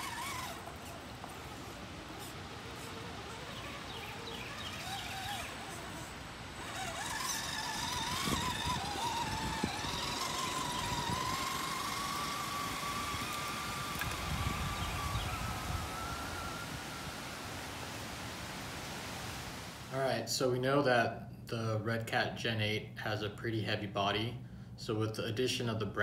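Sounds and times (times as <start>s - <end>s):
electric motor whining: 0.0s - 19.4s.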